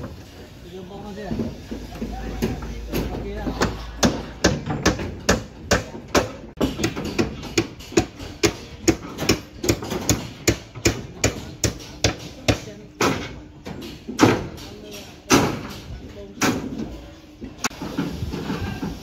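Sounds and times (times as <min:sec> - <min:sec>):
hammer striking steel: 0:02.3 - 0:14.7.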